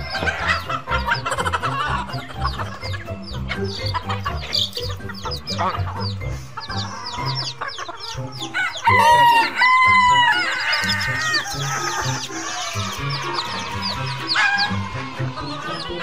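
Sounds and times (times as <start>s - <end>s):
chickens clucking: 0.0s - 16.0s
rooster crowing: 8.4s - 15.9s.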